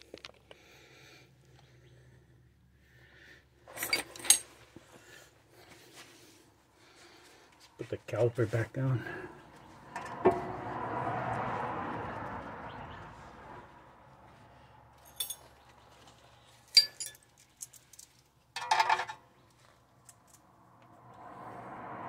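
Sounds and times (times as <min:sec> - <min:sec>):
metal hand tools clinking: 0:15.0 - 0:15.5, 0:16.7 - 0:19.2.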